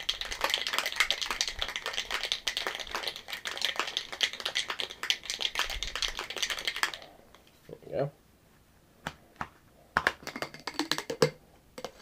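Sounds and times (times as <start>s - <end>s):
ice rattling in cocktail shaker: 0.0s - 7.0s.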